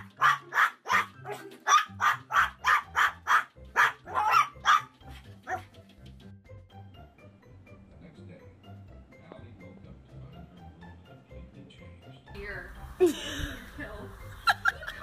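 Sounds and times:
small dog barking rapidly: 0.0 - 5.7.

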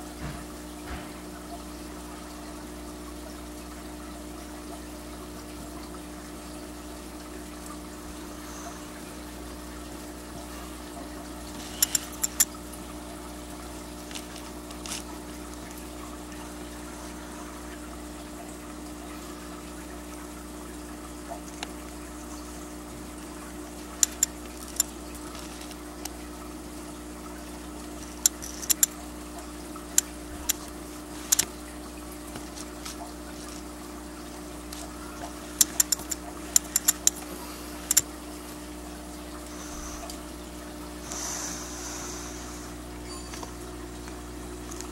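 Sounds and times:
faint constant hum: 0.0 - 44.9
water trickling: 0.0 - 44.9
sharp clicks: 11.7 - 12.6, 24.0 - 25.0, 28.2 - 28.9, 30.0 - 30.7, 35.6 - 37.2
sharp ticks: 11.8 - 12.5, 24.0 - 24.9, 28.2 - 28.9, 35.6 - 37.2.

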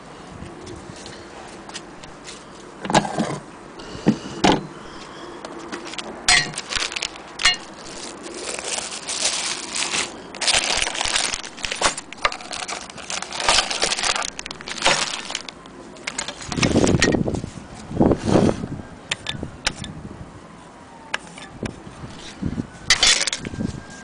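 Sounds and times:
plastic bags crinkling: 5.8 - 17.3
small metal parts clinking: 5.9 - 8.0, 22.9 - 23.6.

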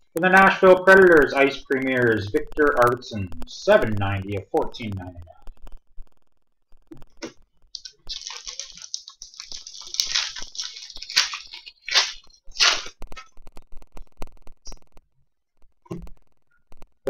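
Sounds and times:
plastic crinkling and rustling: 7.7 - 14.2.

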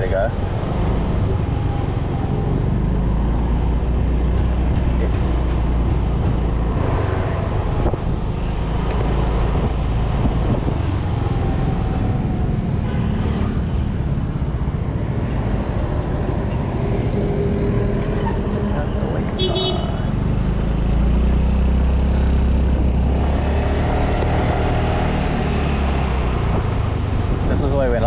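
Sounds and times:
road noise: 0.0 - 28.0
street traffic: 0.0 - 28.0.

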